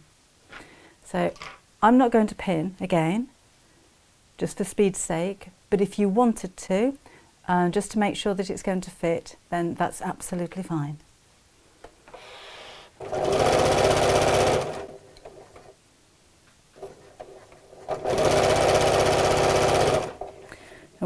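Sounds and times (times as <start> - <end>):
electric sewing machine stitching: 13.0 - 15.1, 17.8 - 20.3.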